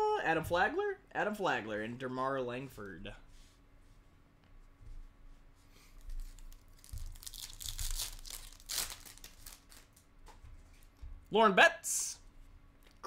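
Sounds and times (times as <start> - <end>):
wrapper torn and crumpled: 6.2 - 10.1.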